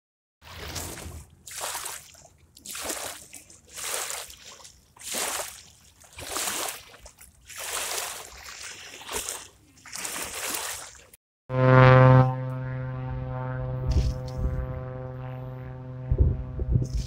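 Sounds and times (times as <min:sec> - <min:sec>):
lake waves lapping on shore: 0:00.4 - 0:11.2.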